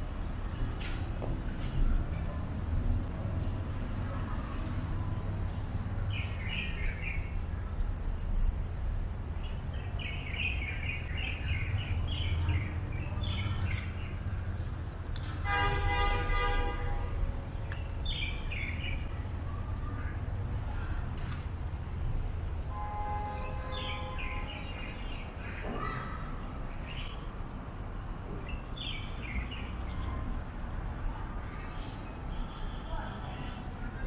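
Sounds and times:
small birds chirping: 4.6 - 8.6, 9.3 - 14.8, 17.5 - 20.3, 23.1 - 27.3, 28.4 - 34.0.

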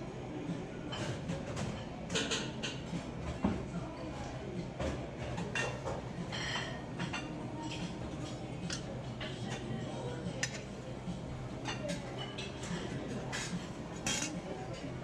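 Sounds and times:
utensils clinking on steel pans: 0.9 - 3.0, 5.2 - 10.8, 11.5 - 15.0.

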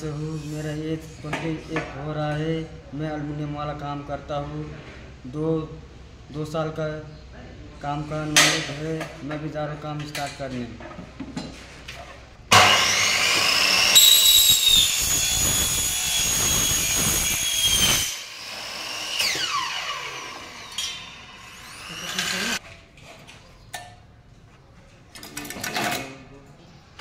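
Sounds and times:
mitre saw cutting metal: 12.5 - 22.6
saw blade spinning down: 12.5 - 22.6.

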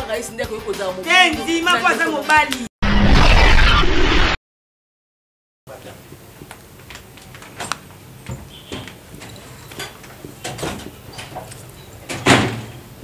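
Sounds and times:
loud sudden noise: 2.8 - 4.4.

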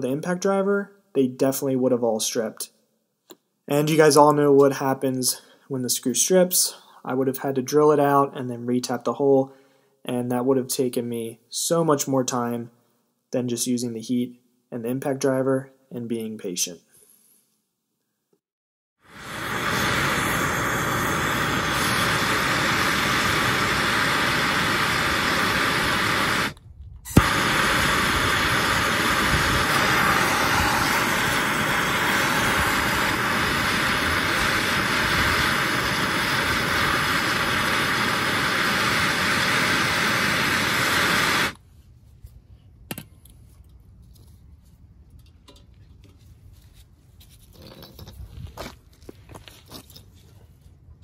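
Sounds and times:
gas torch roaring: 19.0 - 41.6
torch igniting click: 19.2 - 41.6.

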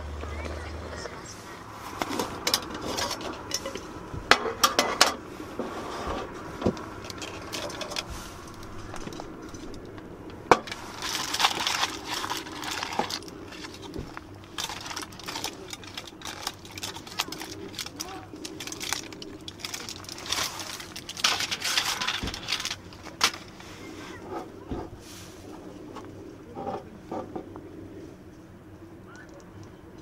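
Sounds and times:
aluminium foil crinkling: 7.0 - 10.0, 10.6 - 23.7.

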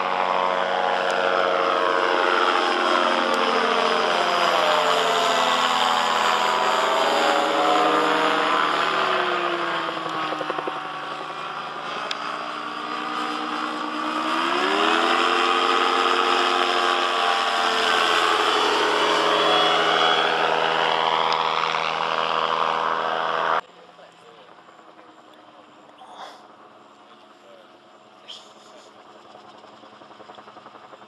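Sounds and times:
gyrocopter engine and propeller: 0.0 - 31.0.

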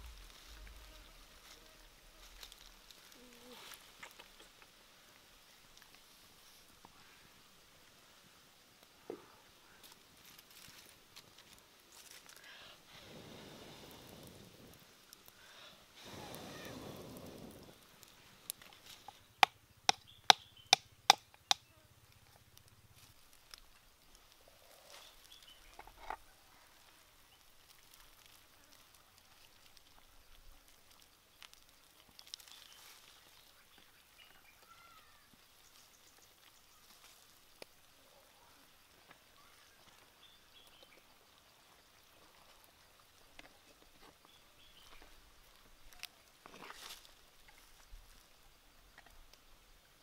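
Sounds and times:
soft bird chirps: 24.5 - 27.6, 31.2 - 37.4, 38.0 - 43.0, 43.6 - 45.2.

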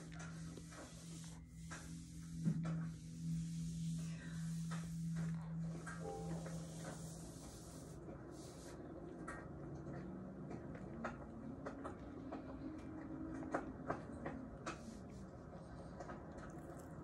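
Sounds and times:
close-up chewing: 10.7 - 17.0.

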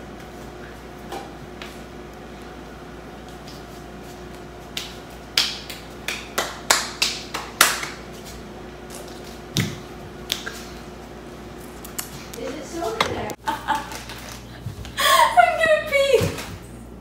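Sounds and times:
finger snaps: 10.3 - 10.6.

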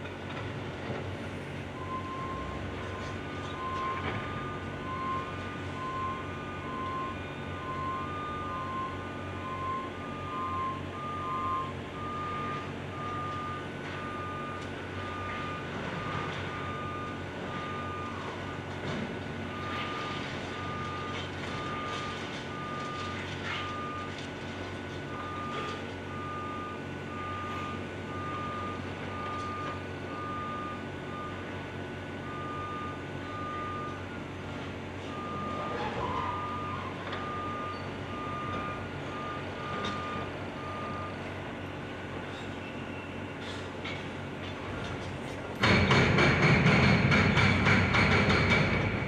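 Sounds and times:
diesel engine drone: 0.0 - 49.0
back-up alarm beeping: 1.8 - 18.7, 19.5 - 24.2, 25.1 - 34.5, 35.1 - 41.2.

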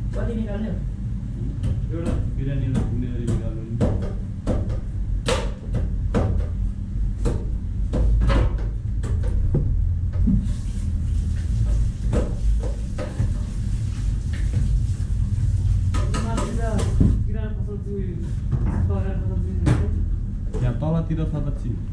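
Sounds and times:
low rumble of cooking line: 0.0 - 21.9.

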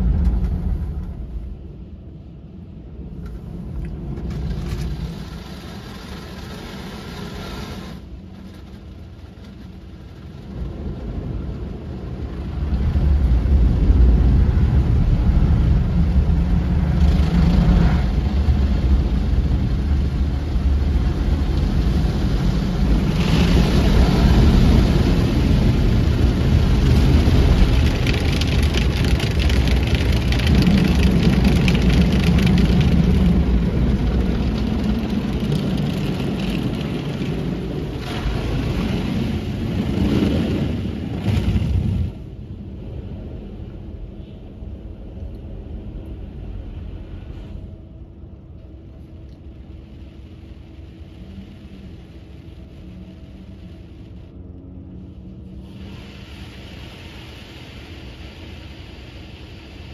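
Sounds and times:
car wash jets spraying water: 3.0 - 43.2, 55.5 - 59.9.

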